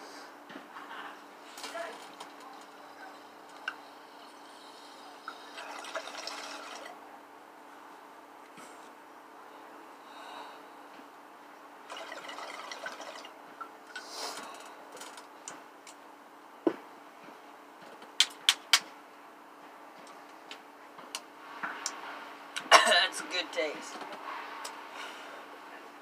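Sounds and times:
person exhaling smoke: 14.0 - 14.7.

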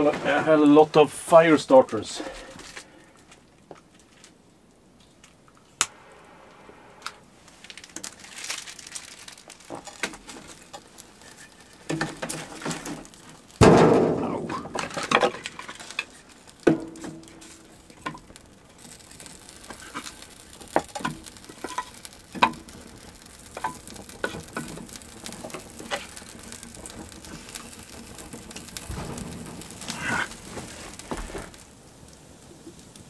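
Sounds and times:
wood fire crackling: 0.0 - 33.0
rustling: 7.2 - 33.0.

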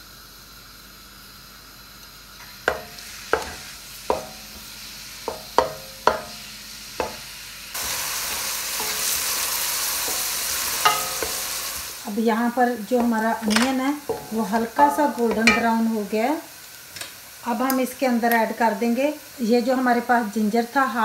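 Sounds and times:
onion sizzling in oil: 0.0 - 21.0
wooden spoon knocking on pot: 2.7 - 4.7, 5.3 - 6.4, 7.0 - 7.2, 10.0 - 11.5, 13.0 - 16.0.

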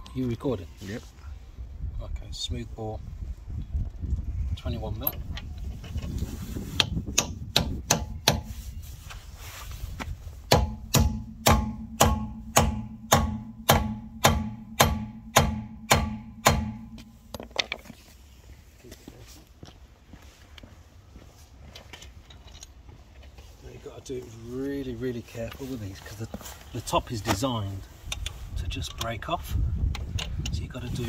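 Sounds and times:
metal ringing: 10.5 - 17.4
hammer striking metal socket: 10.5 - 17.8.

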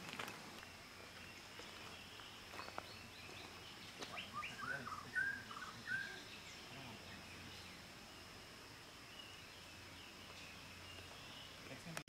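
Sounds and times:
quiet forest ambience: 0.0 - 12.0
songbird whistling: 1.6 - 7.8.

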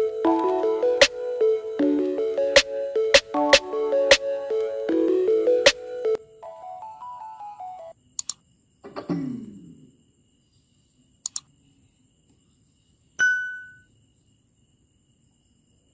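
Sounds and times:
bell-like ding: 13.2 - 13.9.

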